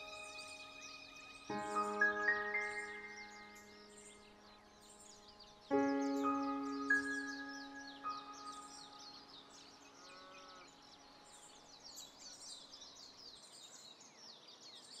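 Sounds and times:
background music: 0.0s - 10.0s
small birds chirping: 0.0s - 15.0s.

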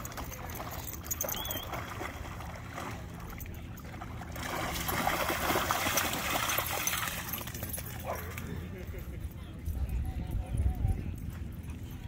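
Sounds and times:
dog splashing in water: 3.8s - 8.0s.

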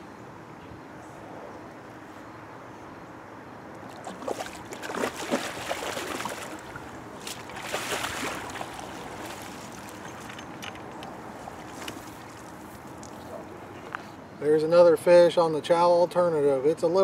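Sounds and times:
water lapping: 3.8s - 13.7s
fish thrashing and splashing: 3.9s - 13.2s.

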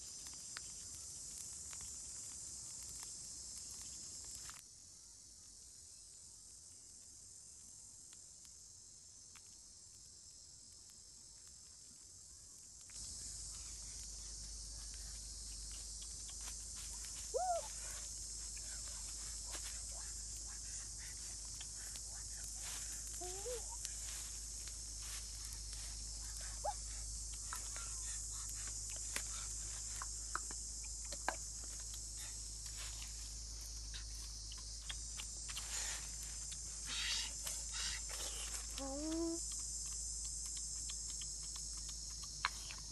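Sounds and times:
high-pitched insect chorus: 0.0s - 42.9s
leaves rustling: 12.9s - 30.8s, 31.5s - 38.9s
faint clicks: 21.3s - 24.0s, 38.4s - 42.9s.

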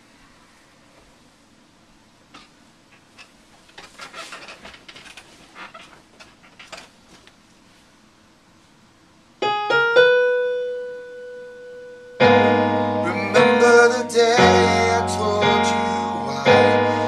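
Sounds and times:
piano notes and chords: 9.4s - 17.0s.

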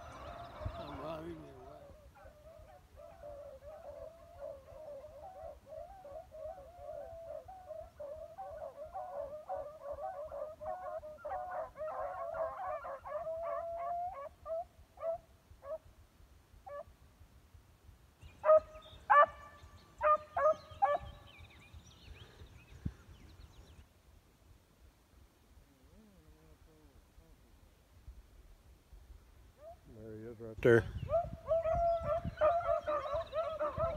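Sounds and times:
dogs baying and barking: 0.0s - 15.8s, 18.4s - 19.4s, 20.0s - 21.1s, 31.0s - 33.9s
loud close dog barks: 8.6s - 15.8s, 18.4s - 19.4s, 20.0s - 21.1s, 31.1s - 33.9s.

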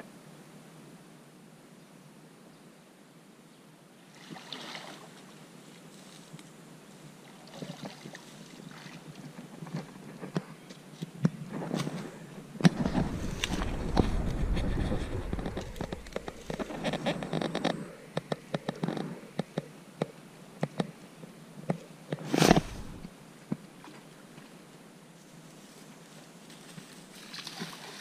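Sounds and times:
rope and grass rustling: 5.6s - 17.9s, 22.2s - 23.1s, 25.2s - 28.0s
low rumble: 12.5s - 18.0s, 22.5s - 23.1s.

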